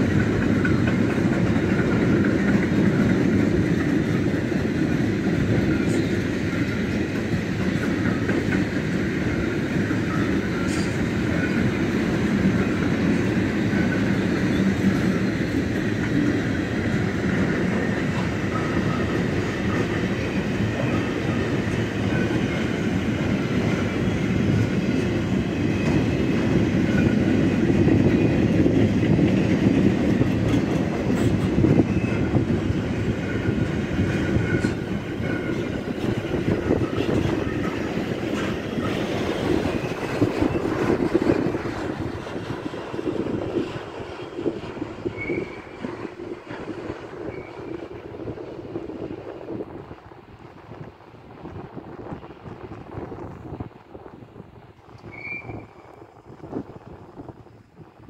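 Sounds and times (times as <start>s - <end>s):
steel wheels rumbling on rails: 0.0s - 58.0s
high wheel squeals: 31.7s - 32.5s, 45.0s - 45.9s, 47.2s - 47.8s, 55.0s - 56.0s.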